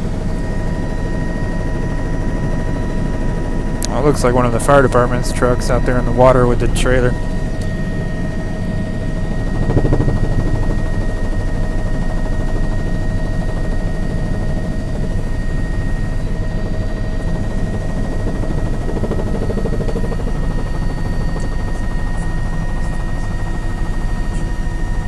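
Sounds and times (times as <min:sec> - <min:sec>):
helicopter rotor rumble: 0:00.0 - 0:25.0
high turbine whine: 0:00.0 - 0:25.0.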